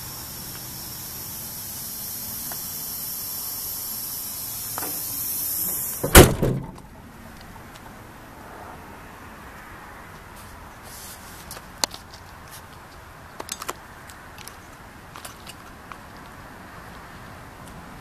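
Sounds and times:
steady hiss: 0.0 - 7.4
truck door slamming: 4.7 - 6.9.

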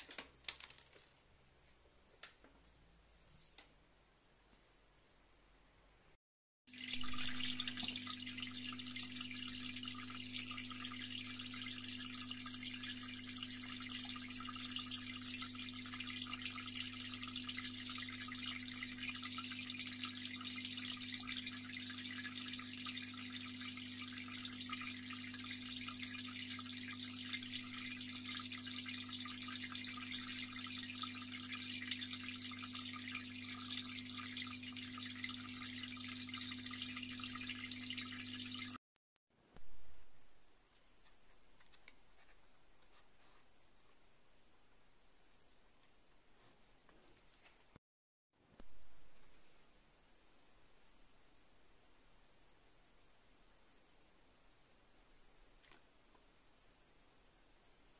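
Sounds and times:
aquarium pump hum: 6.7 - 38.8
water bubbling and trickling: 6.7 - 38.8.

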